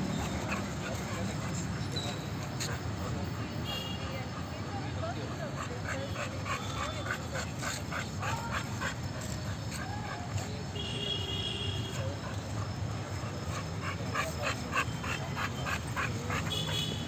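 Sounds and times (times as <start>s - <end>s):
dogs whining: 12.0s - 16.5s.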